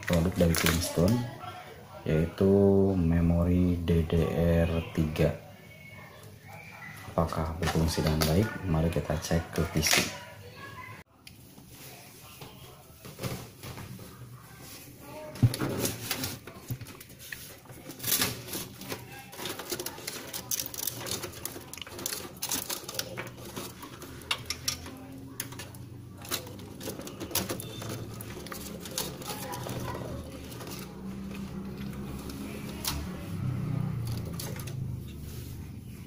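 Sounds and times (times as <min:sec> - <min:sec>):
clicks and rattles inside computer case: 0:15.4 - 0:33.4.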